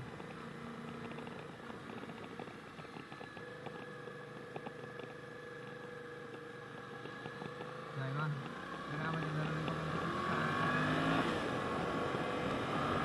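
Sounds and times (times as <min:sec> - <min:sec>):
motorcycle engine running: 0:00.0 - 0:13.0
wind and road noise: 0:00.0 - 0:13.0
small ticks: 0:00.1 - 0:09.9.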